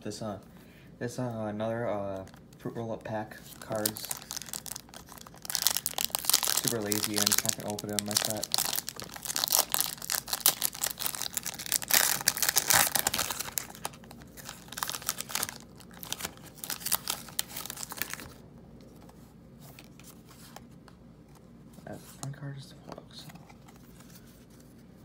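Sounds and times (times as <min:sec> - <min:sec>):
wrapper being torn and crinkled: 0:03.5 - 0:18.4.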